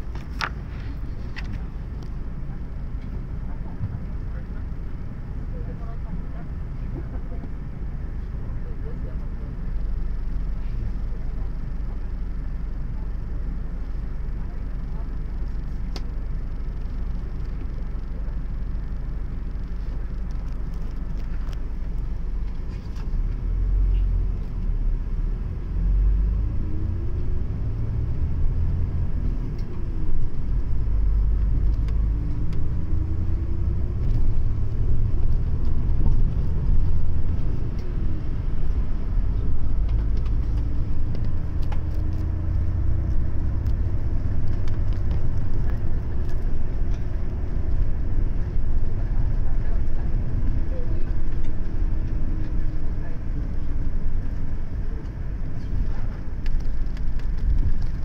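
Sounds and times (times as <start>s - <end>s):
bus engine rumble: 0.0s - 58.0s
drivetrain whine: 0.0s - 58.0s.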